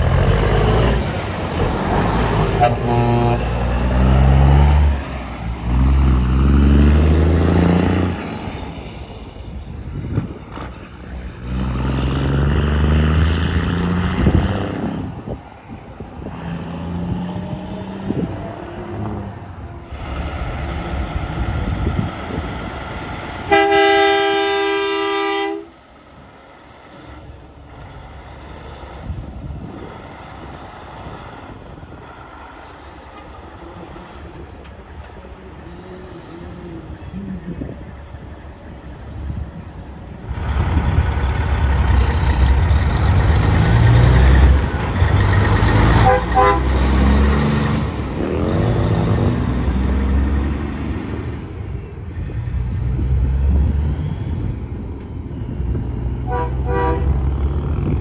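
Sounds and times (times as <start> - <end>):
diesel truck engine pulling away: 0.0 - 23.5, 40.1 - 58.0
truck horn blast: 2.5 - 3.9, 23.5 - 25.8, 45.8 - 47.2, 56.2 - 57.3
distant engine rumbling: 36.3 - 58.0.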